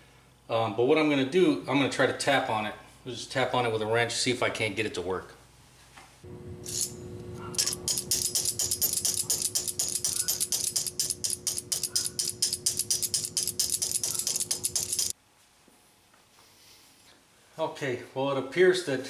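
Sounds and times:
steady hum: 6.2 - 15.2
wrench tapping on valve: 7.6 - 15.1.

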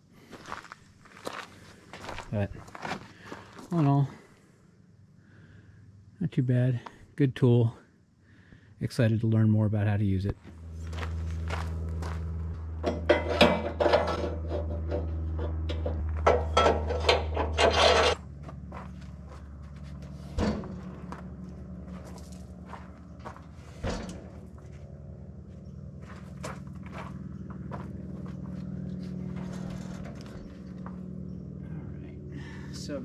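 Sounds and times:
steady low hum: 0.0 - 33.0
log scraping on steel: 12.8 - 18.3.

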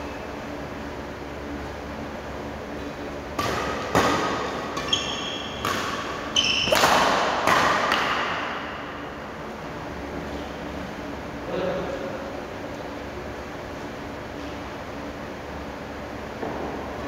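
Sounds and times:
rackets hitting shuttlecock: 3.3 - 9.0
shoes squeaking on court: 4.1 - 7.1.

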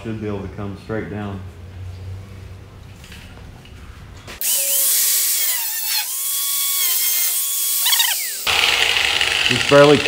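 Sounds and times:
angle grinder cutting sheet metal: 4.4 - 10.0.

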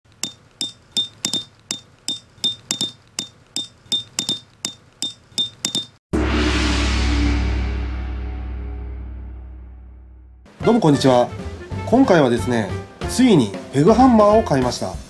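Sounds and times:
hammer striking metal tent peg: 0.1 - 6.0
music: 6.2 - 15.0.

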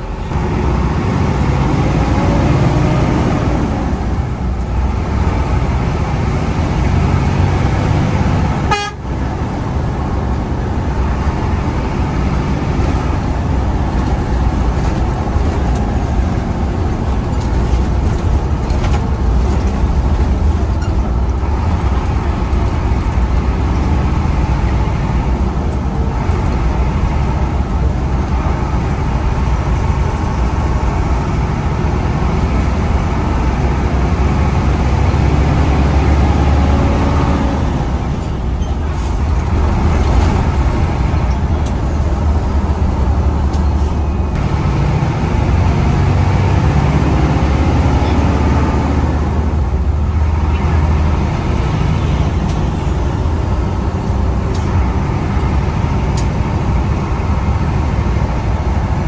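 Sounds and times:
bus engine running: 0.0 - 59.0
road noise: 0.0 - 59.0
bus horn tooting: 8.4 - 9.5.

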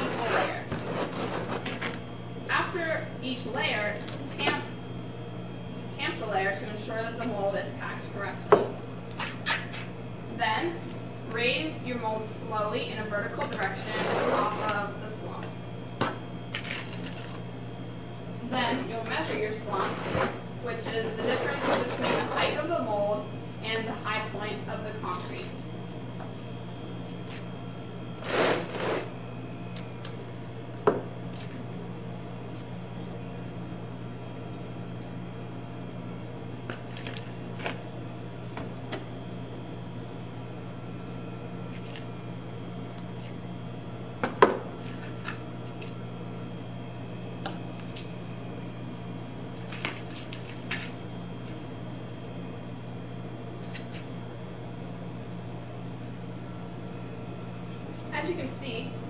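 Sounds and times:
low electrical hum: 0.0 - 59.0.

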